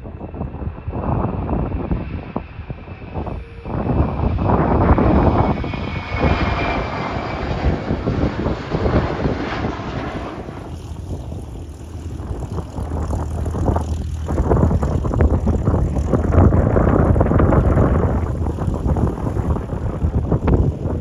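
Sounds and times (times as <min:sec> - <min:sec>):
airplane engine noise: 0:00.0 - 0:21.0
wind buffeting microphone: 0:00.0 - 0:21.0
faint high whine: 0:01.6 - 0:08.4.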